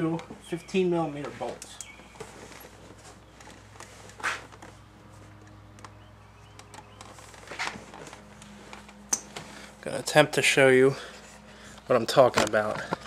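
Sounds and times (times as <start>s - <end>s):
steady low hum: 0.0s - 13.0s
soft rustle: 1.1s - 5.5s.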